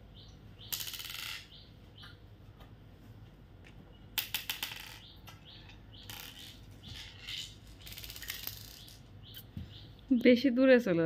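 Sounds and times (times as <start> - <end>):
glass marbles clicking on tile floor: 0.7 - 1.5, 4.2 - 9.1.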